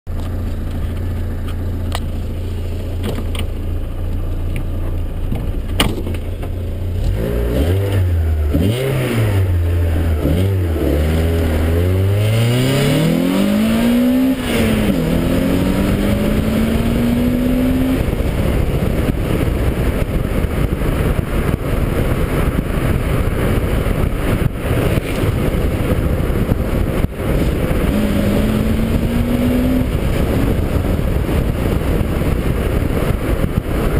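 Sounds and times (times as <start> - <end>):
car engine idling and revving: 0.1 - 33.9
wind noise: 0.1 - 33.9.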